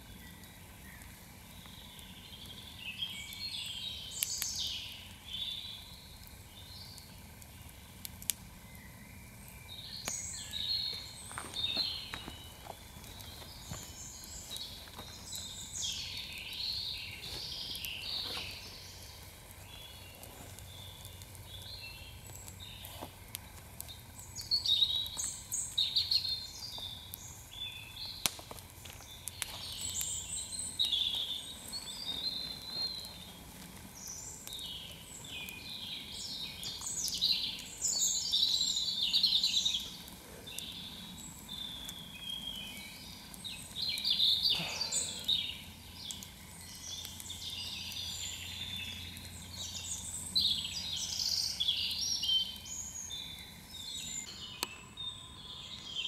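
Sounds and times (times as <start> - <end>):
campfire popping: 0.0 - 56.0
small animals chirping and trilling: 34.0 - 56.0.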